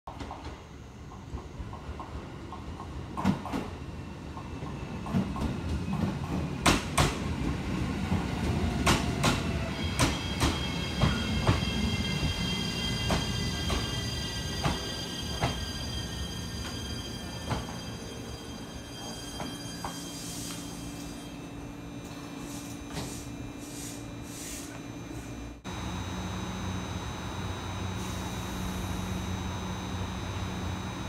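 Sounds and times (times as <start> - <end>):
low train rumble: 0.1 - 23.6
train inverter whine: 8.1 - 31.0.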